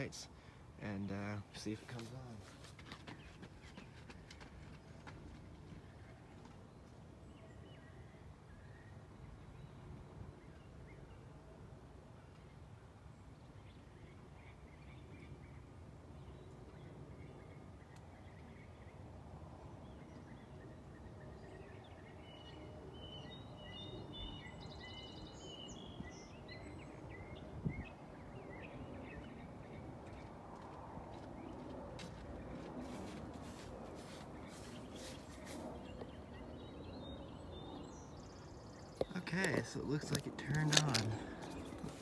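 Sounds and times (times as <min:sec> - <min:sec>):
birds chirping: 0:00.0 - 0:11.4, 0:12.2 - 0:42.0.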